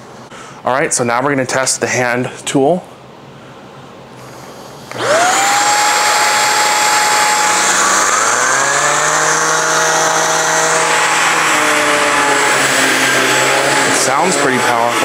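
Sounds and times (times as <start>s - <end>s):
lower hum of hand tool: 4.2s - 15.0s
vacuum motor whine: 4.2s - 15.0s.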